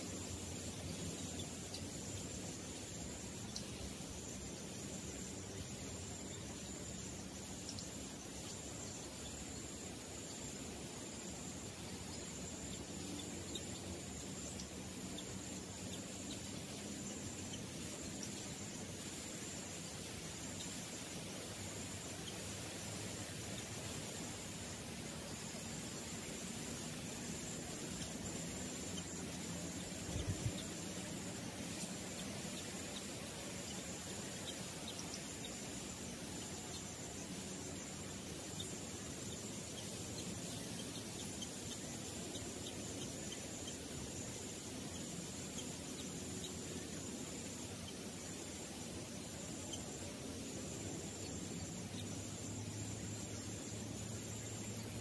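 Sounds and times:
even hiss: 0:00.0 - 0:55.0
insects droning: 0:00.0 - 0:55.0
faint ticks: 0:00.8 - 0:03.8, 0:07.6 - 0:09.0, 0:27.6 - 0:35.7.

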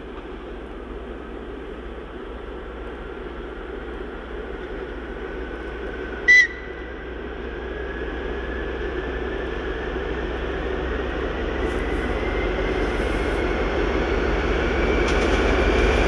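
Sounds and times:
diesel locomotive engine drone: 0:00.0 - 0:16.0
short high-pitched whistle blast: 0:06.3 - 0:06.8.

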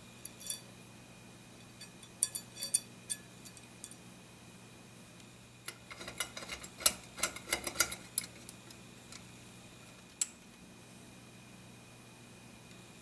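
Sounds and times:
metal clicks and clinks: 0:00.2 - 0:00.7, 0:01.8 - 0:04.0.

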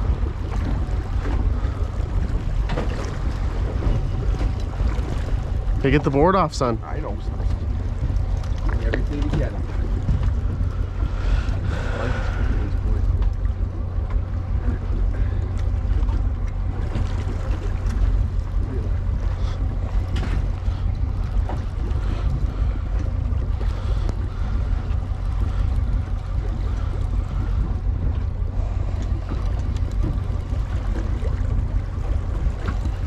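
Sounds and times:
boat engine drone: 0:00.0 - 0:33.0
wind rumbling on microphone: 0:00.0 - 0:33.0.

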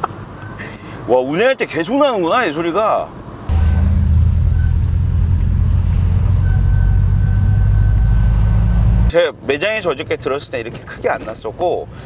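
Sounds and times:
car engine drone: 0:03.5 - 0:09.1
high-pitched whine: 0:03.5 - 0:09.1.

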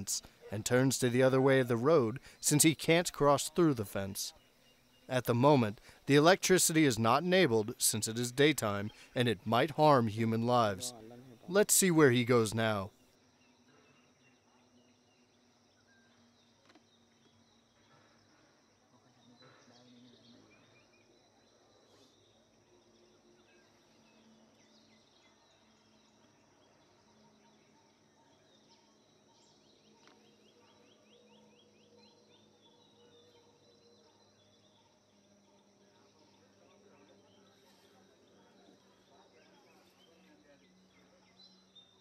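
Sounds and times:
high insect hum: 0:00.0 - 0:42.0
faint chirps and clicks: 0:13.4 - 0:18.4, 0:23.4 - 0:35.2.

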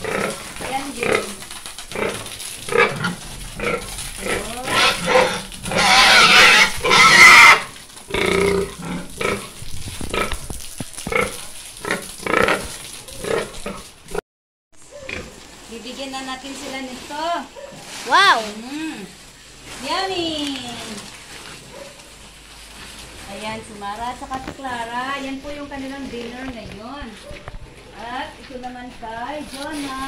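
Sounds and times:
pigs grunting: 0:00.0 - 0:10.5, 0:11.1 - 0:13.9
water hosing: 0:00.0 - 0:14.2, 0:14.8 - 0:27.0, 0:27.9 - 0:30.0.

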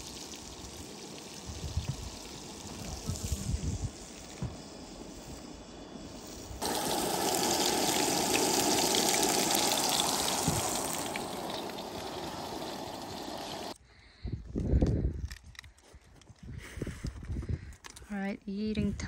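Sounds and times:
patties sizzling in a frying pan: 0:00.0 - 0:03.6, 0:06.6 - 0:13.8.

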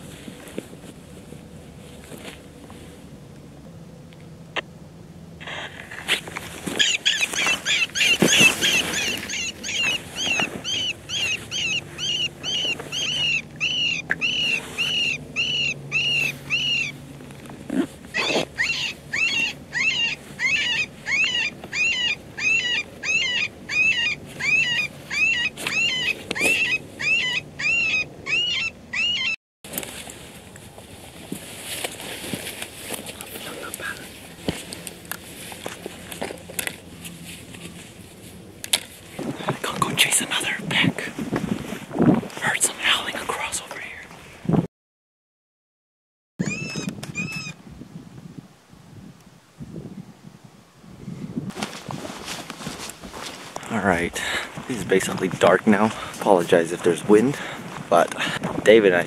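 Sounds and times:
electronic prey distress cries: 0:06.8 - 0:17.0, 0:17.7 - 0:29.4, 0:46.4 - 0:47.6.

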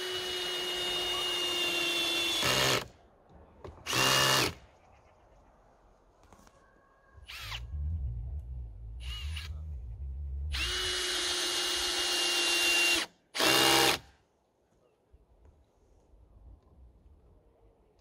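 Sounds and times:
cordless drill motor whine: 0:10.5 - 0:13.6.

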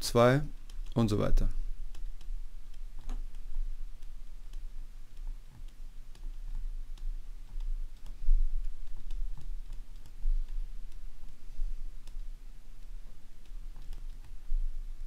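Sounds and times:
low hum: 0:00.0 - 0:15.0
stylus tapping on tablet: 0:01.9 - 0:11.4.

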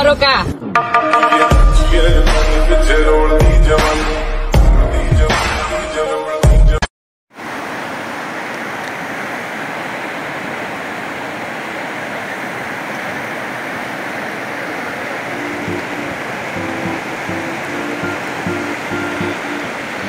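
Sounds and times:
music: 0:00.7 - 0:06.9, 0:15.4 - 0:20.0
river rushing over rocks: 0:07.4 - 0:20.0.

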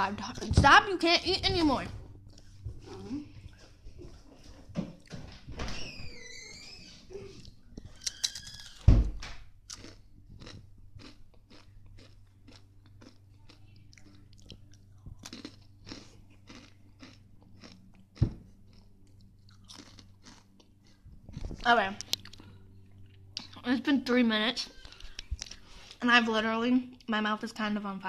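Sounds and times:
person crunching snacks: 0:08.0 - 0:08.8, 0:09.7 - 0:22.4.

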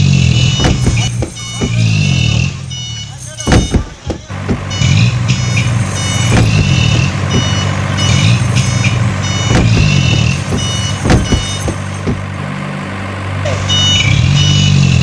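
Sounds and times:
truck engine running: 0:00.0 - 0:15.0
short electronic beeps: 0:00.3 - 0:11.9, 0:13.5 - 0:15.0
sharp knocks: 0:00.6 - 0:01.9, 0:03.5 - 0:04.7, 0:06.2 - 0:12.3.

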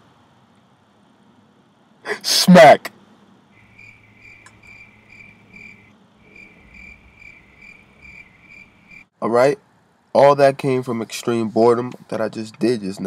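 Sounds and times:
faint cricket chirping: 0:03.5 - 0:09.1.

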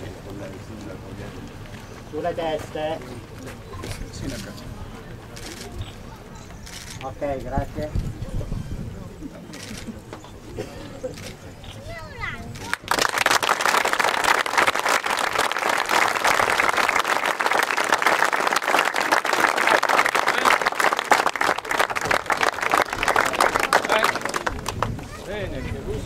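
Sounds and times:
crowd applauding: 0:12.6 - 0:25.1.

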